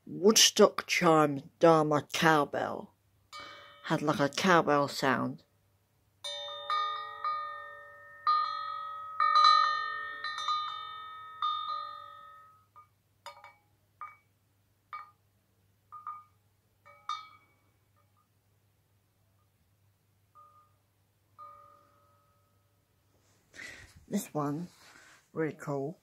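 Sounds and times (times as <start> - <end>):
cowbell ringing: 3.3 - 4.1, 6.2 - 15.2, 15.9 - 18.0, 20.3 - 22.8
damped bell clanks: 3.4 - 3.9, 6.2 - 14.2, 16.0 - 17.7, 21.4 - 22.6.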